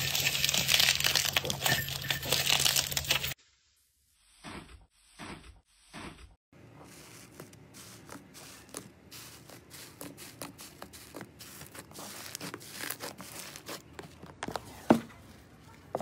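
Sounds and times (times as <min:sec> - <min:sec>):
foam slime crackling and popping: 0:00.0 - 0:01.8, 0:06.9 - 0:14.1.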